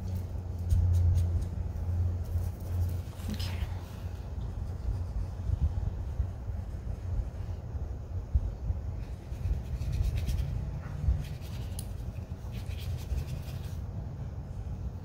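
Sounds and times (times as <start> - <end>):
steady low rumble: 0.0 - 15.0
brush scratching on paper: 4.4 - 5.8, 9.0 - 13.8.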